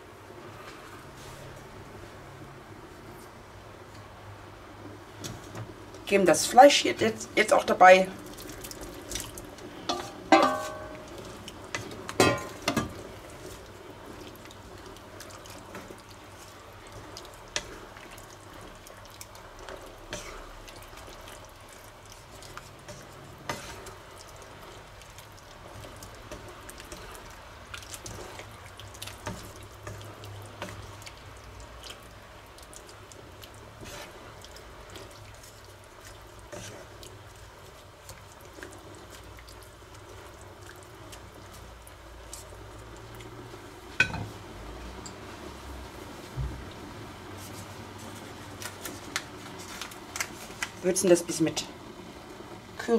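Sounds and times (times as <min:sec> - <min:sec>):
sauce simmering and bubbling: 0:00.0 - 0:52.9
wooden spatula stirring and scraping: 0:04.8 - 0:51.1
spatula tapping pan: 0:09.9 - 0:13.0.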